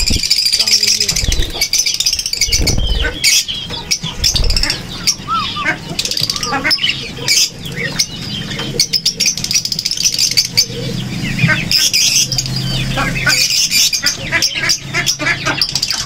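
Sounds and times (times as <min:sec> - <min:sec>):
lovebirds chirping and squeaking: 0:00.0 - 0:16.0
wing flutters: 0:01.0 - 0:03.4, 0:04.1 - 0:04.9.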